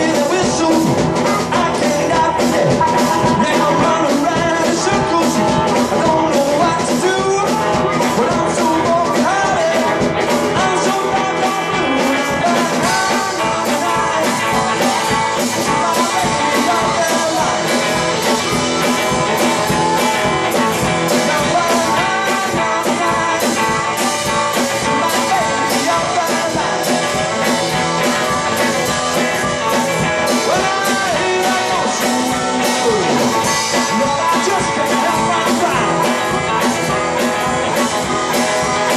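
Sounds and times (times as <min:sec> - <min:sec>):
drum kit beat: 0:00.0 - 0:38.9
electric guitar: 0:00.0 - 0:38.9
harmonica with bending notes: 0:12.9 - 0:23.2.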